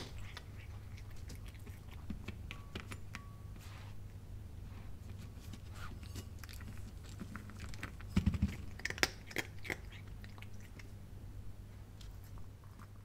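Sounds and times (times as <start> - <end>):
cat crunching dry kibble: 0.0 - 3.1, 5.1 - 11.0.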